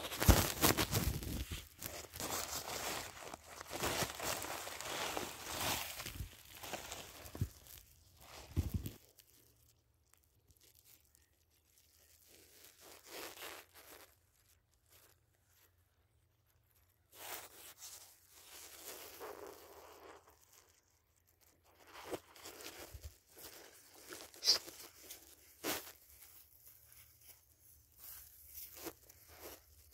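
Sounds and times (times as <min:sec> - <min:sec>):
rustling in dry grass and sand: 0:00.0 - 0:29.9.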